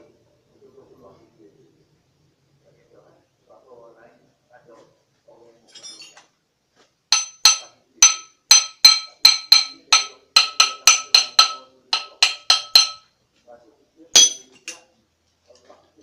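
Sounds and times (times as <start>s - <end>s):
metal tool knocking on flywheel: 7.1s - 13.0s.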